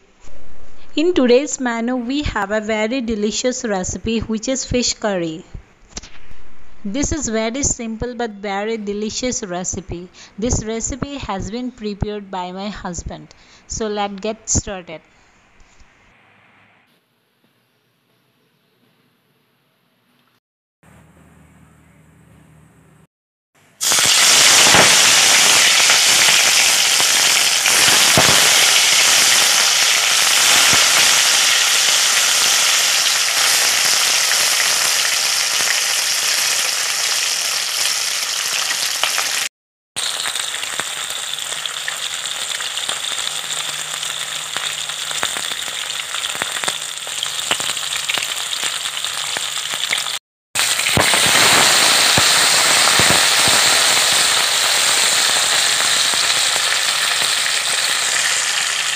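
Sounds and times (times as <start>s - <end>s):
fish deep-frying in oil: 23.8s - 58.9s.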